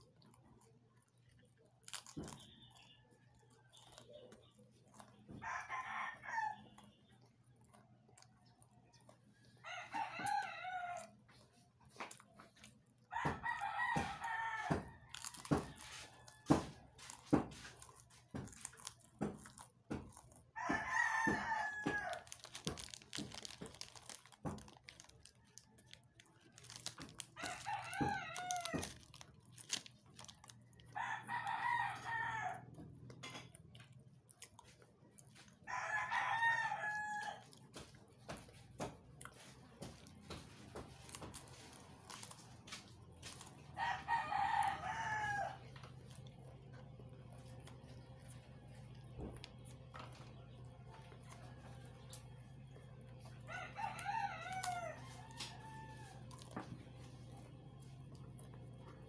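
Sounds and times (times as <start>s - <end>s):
crackers crunching: 0.0s - 59.0s
rooster crowing: 5.3s - 6.9s, 9.4s - 11.4s, 13.0s - 17.6s, 20.5s - 32.8s, 35.6s - 46.2s, 53.2s - 57.2s.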